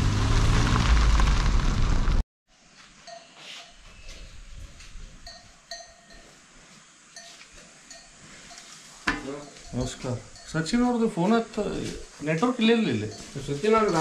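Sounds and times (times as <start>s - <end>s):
cattle bells clinking: 3.0s - 4.0s, 5.1s - 6.5s, 7.1s - 14.0s.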